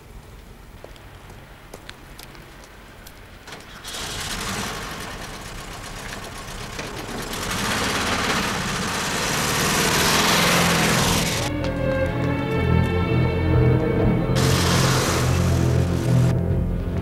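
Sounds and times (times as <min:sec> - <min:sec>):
engine rattly rumble: 0:03.5 - 0:11.6, 0:14.3 - 0:16.8.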